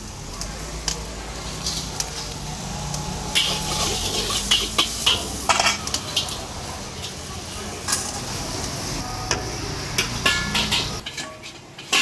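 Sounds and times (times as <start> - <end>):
spatula clanking against wok: 3.3 - 7.3, 9.3 - 12.0.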